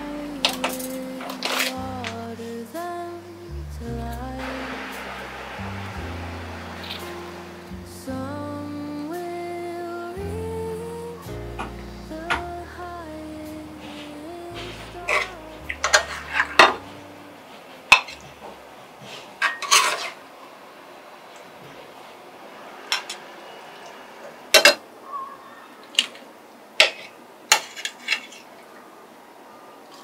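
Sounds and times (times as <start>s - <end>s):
metal spoon scraping skillet: 19.4s - 20.2s.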